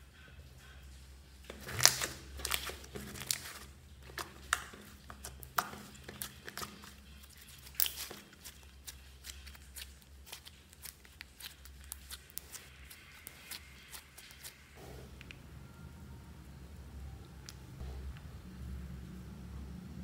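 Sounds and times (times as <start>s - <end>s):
sticky slime clicks and crackles: 1.5s - 14.6s.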